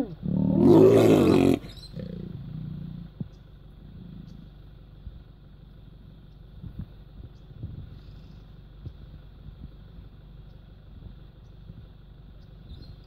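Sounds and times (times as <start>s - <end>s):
lion growling: 0.0s - 4.6s
vehicle engine idling: 1.0s - 13.0s.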